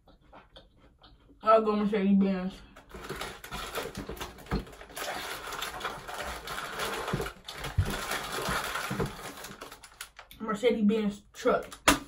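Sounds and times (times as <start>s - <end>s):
hand rustling in snack box: 2.9s - 10.0s.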